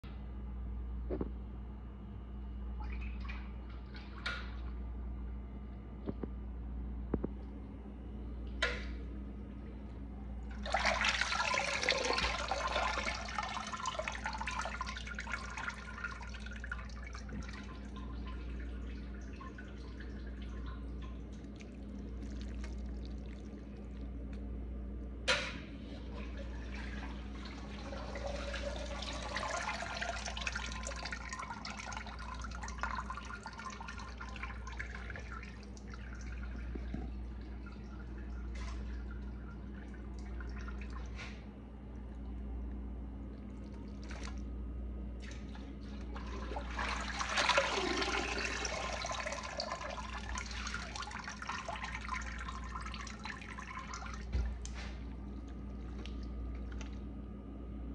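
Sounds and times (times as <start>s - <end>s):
low steady hum: 0.0s - 57.9s
water pouring and splashing: 10.6s - 24.2s, 25.8s - 41.4s, 43.4s - 44.5s, 45.2s - 57.1s.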